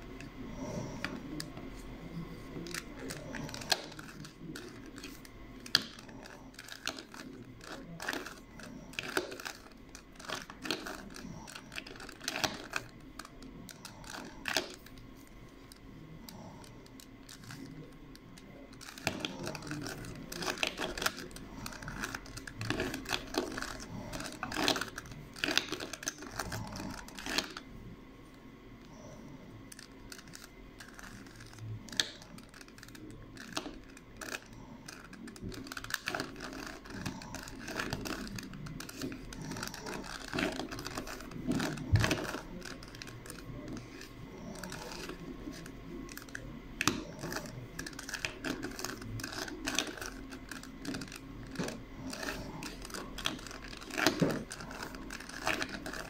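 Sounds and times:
puzzle cube clicking as turned: 0:02.6 - 0:15.0, 0:18.7 - 0:27.6, 0:29.7 - 0:56.0.

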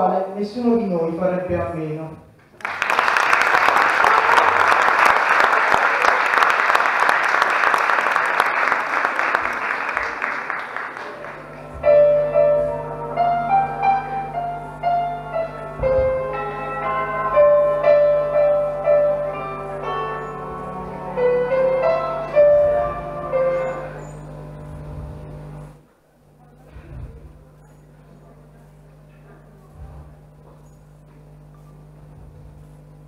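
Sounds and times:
audience applause: 0:02.5 - 0:14.3
slow piano melody: 0:11.0 - 0:25.8.

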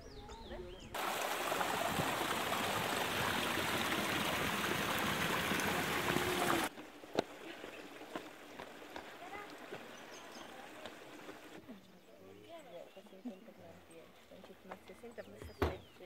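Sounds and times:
water splashing down stone channel: 0:01.0 - 0:06.7.

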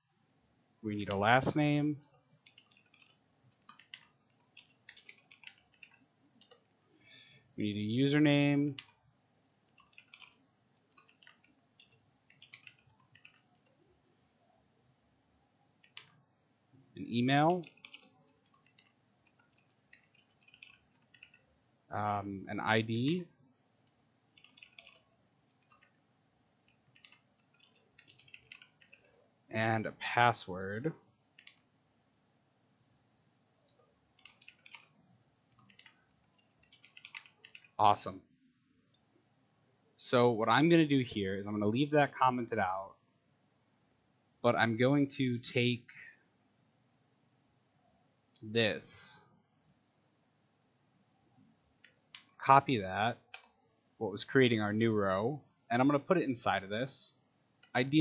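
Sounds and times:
computer keyboard typing: 0:02.0 - 0:06.7, 0:08.6 - 0:09.0, 0:09.6 - 0:13.8, 0:15.8 - 0:16.2, 0:17.4 - 0:21.5, 0:23.8 - 0:26.0, 0:26.6 - 0:29.2, 0:31.3 - 0:31.7, 0:33.6 - 0:37.8, 0:51.8 - 0:52.4, 0:53.2 - 0:53.6.

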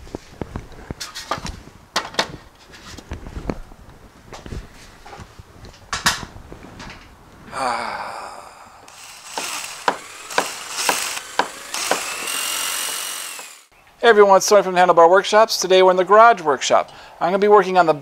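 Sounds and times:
man sighing: 0:07.5 - 0:09.0
ratcheting mechanical clicks: 0:08.9 - 0:13.7.

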